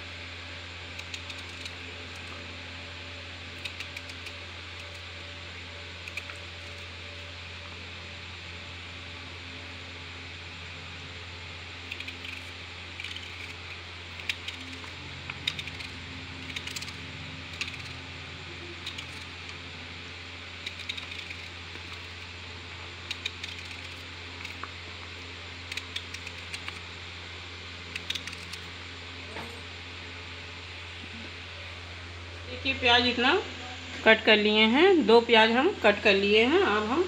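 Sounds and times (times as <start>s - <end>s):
steady low hum: 0.0s - 37.0s
knife chopping onion: 11.8s - 19.6s.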